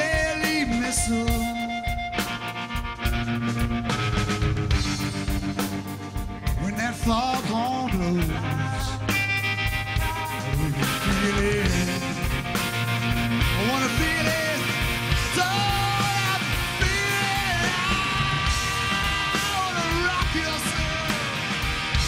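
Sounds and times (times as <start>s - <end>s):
bass guitar: 0.0s - 22.0s
drums: 0.0s - 22.0s
electric guitars: 0.0s - 22.0s
man singing near shouting: 9.9s - 12.2s, 13.6s - 21.5s.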